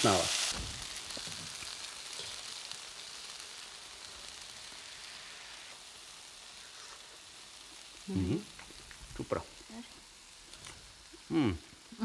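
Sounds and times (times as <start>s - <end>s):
stir-fry sizzling in a wok: 0.0s - 12.0s.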